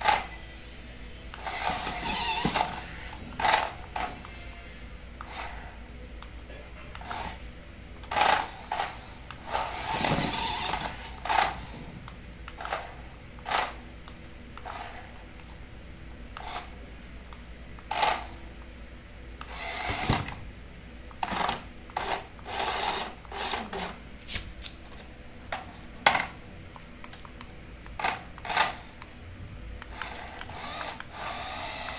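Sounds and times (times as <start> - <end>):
toy car motor whirring: 0.0 - 0.4, 1.3 - 4.6, 5.2 - 5.7, 8.0 - 11.8, 16.4 - 16.8, 17.8 - 18.3, 19.4 - 20.4, 21.2 - 24.0, 28.0 - 29.0, 29.8 - 31.9.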